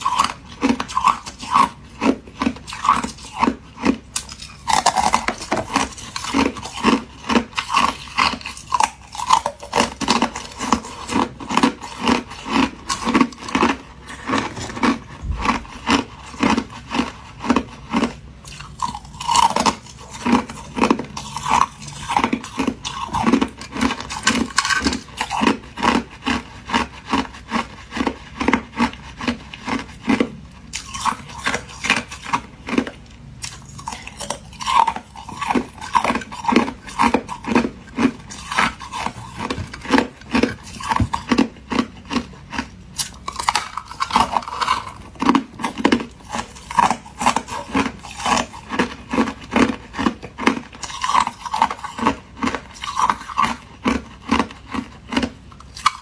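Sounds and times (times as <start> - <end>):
ice being crunched and chewed: 0.0 - 56.0.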